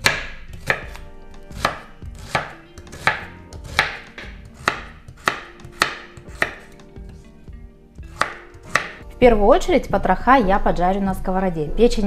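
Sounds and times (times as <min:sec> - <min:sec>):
knife chopping on wooden board: 0:00.0 - 0:07.2, 0:08.1 - 0:09.0.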